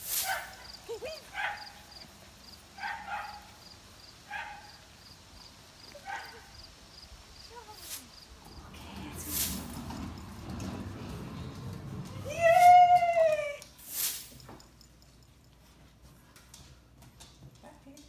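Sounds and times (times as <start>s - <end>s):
small dog barking: 0.2s - 0.7s, 1.3s - 1.9s, 2.8s - 3.6s, 4.3s - 4.8s, 6.0s - 6.6s.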